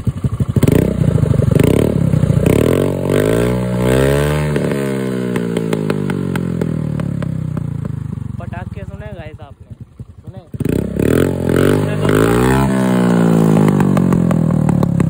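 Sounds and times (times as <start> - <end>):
scooter engine revving: 0.0 - 15.0
exhaust backfire pops: 12.9 - 15.0.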